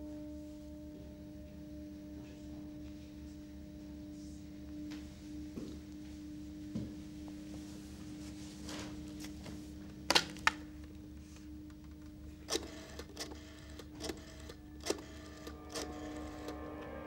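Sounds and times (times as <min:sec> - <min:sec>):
steady low hum: 0:00.0 - 0:17.0
rotary dial clicks: 0:12.5 - 0:15.9.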